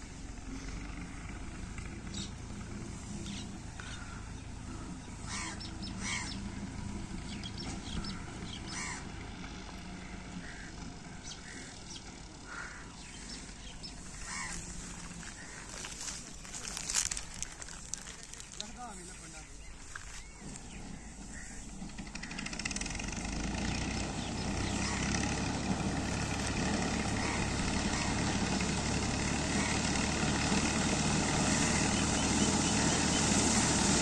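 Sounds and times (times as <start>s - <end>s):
distant tractor engine hum: 0.0s - 34.0s
short bird calls: 3.1s - 6.6s, 10.0s - 22.6s.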